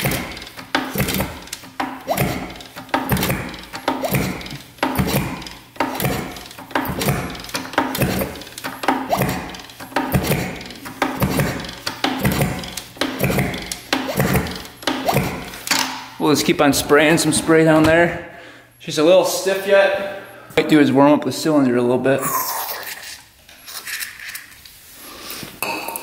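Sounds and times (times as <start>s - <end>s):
crunchy kick-start lever strokes: 0.0s - 16.1s.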